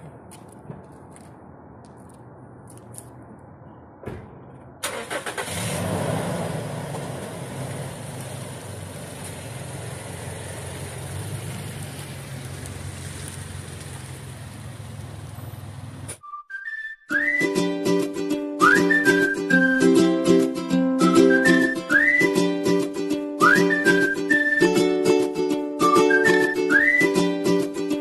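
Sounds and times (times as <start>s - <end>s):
car driving off: 4.8s - 16.2s
car engine starting and revving: 4.8s - 16.2s.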